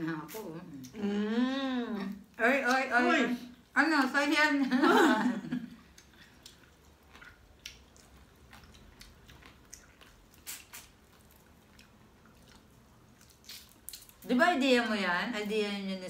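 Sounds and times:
wet chewing: 5.8s - 14.3s
shellfish shells cracking: 13.3s - 14.2s.

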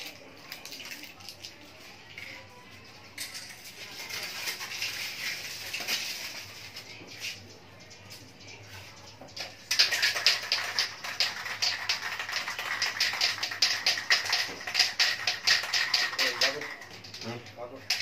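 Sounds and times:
spray can ball rattling: 3.2s - 7.4s, 9.2s - 18.0s.

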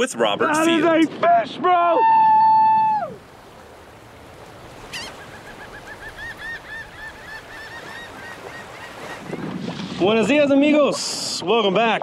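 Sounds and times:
sea waves: 0.0s - 12.0s
wind: 0.0s - 12.0s
bird calling: 4.7s - 9.6s.

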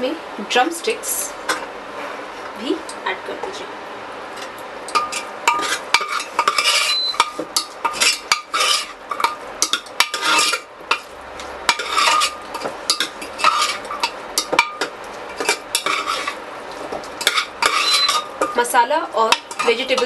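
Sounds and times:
ladle scraping a metal pot: 5.0s - 11.1s, 11.7s - 16.4s, 17.2s - 18.5s.

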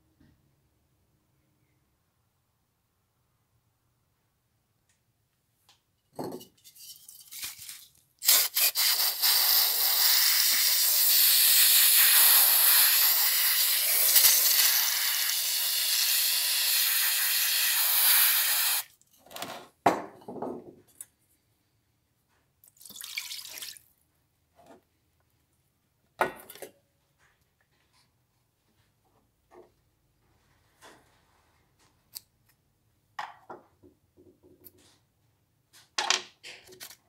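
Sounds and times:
aerosol spray hissing: 8.2s - 18.9s.

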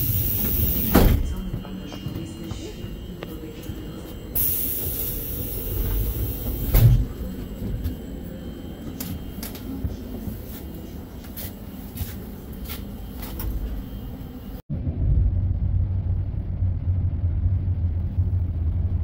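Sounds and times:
hiss: 0.0s - 1.2s, 4.4s - 6.9s
low station rumble: 0.0s - 19.0s
loud thump: 0.9s - 1.4s.

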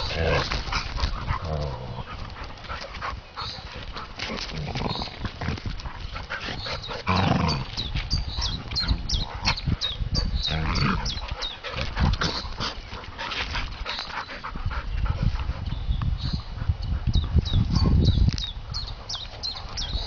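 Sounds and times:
scuffle of paws and snapping jaws: 0.0s - 8.1s
dogs growling and grunting: 0.0s - 13.4s.

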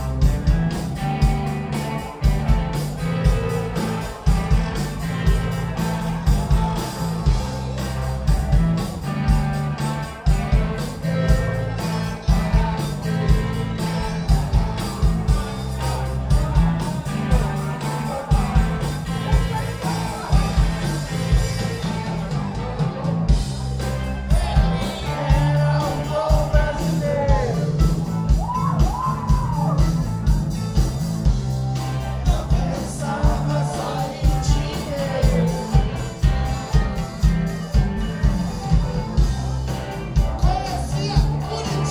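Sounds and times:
live rock band playing: 0.0s - 41.9s
lead vocal singing: 10.3s - 15.0s, 15.7s - 22.6s, 23.9s - 29.8s, 31.8s - 37.3s, 40.1s - 41.9s.

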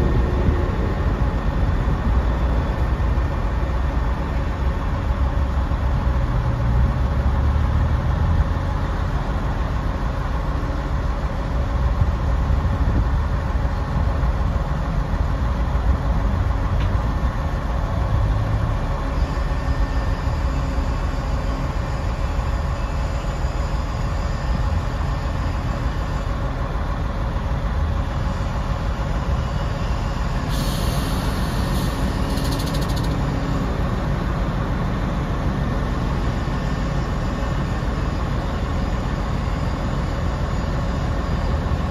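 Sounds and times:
diesel truck engine running: 0.0s - 41.9s
hydraulic hiss: 30.4s - 33.2s.

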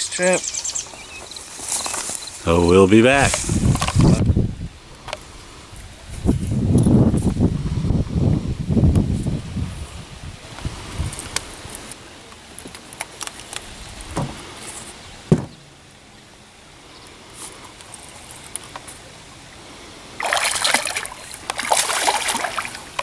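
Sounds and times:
sharp knocks: 14.2s - 14.4s, 15.3s - 15.8s
fish thrashing and splashing: 20.1s - 23.0s.

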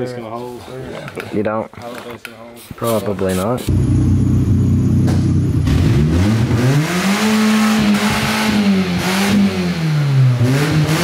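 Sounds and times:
car engine revving: 3.7s - 11.0s.

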